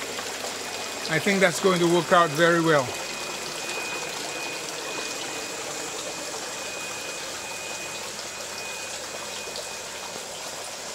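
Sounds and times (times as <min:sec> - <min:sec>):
water splashing into a tank: 0:00.0 - 0:10.9.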